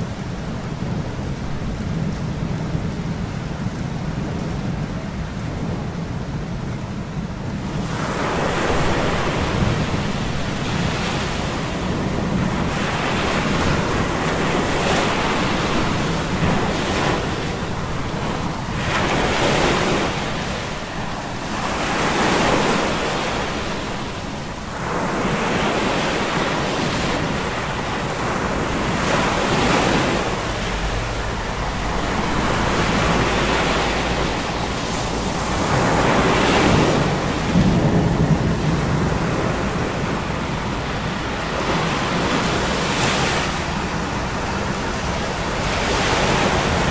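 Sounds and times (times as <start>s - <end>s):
storm surf crashing: 0.0s - 46.9s
wind rushing: 25.7s - 46.9s.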